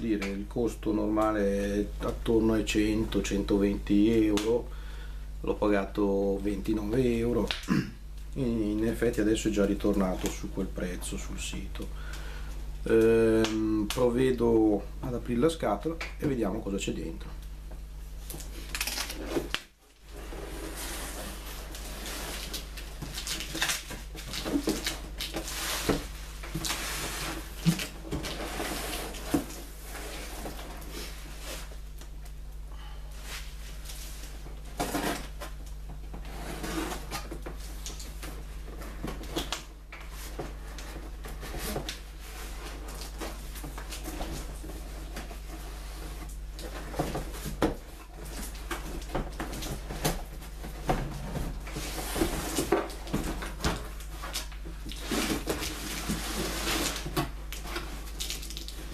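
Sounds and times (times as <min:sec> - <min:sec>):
steady low hum: 0:00.0 - 0:58.9
cardboard flaps rustling and scraping: 0:18.4 - 0:31.9, 0:33.2 - 0:39.5, 0:40.1 - 0:58.9.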